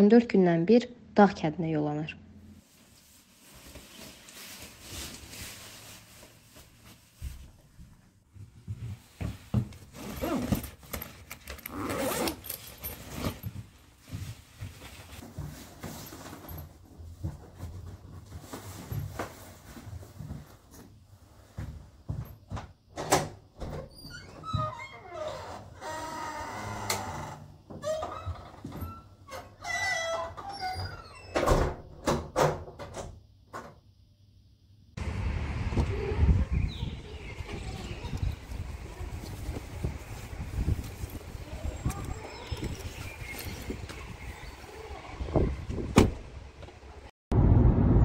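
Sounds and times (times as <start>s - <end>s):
jacket rustling: 2.6s - 16.8s
footsteps: 2.7s - 10.0s
zipper: 9.8s - 13.5s
door creaking squeal: 23.8s - 31.7s
door thudding shut: 45.7s - 46.3s.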